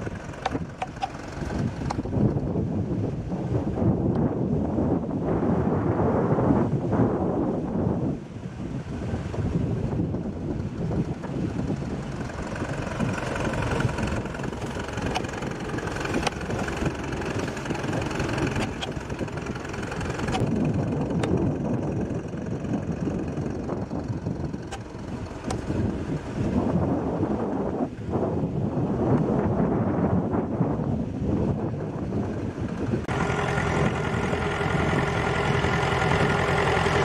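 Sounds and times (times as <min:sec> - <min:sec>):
winch drum hauling rope: 0:00.0 - 0:04.2, 0:09.0 - 0:27.7, 0:31.2 - 0:37.0
tractor engine running: 0:00.0 - 0:04.4, 0:09.2 - 0:27.2, 0:32.0 - 0:37.0
sharp ticks: 0:18.0 - 0:21.4.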